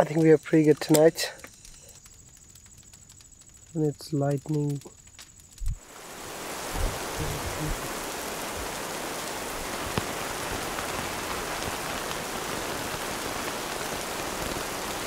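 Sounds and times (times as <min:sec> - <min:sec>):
heavy rain on a tent: 0:05.6 - 0:15.0.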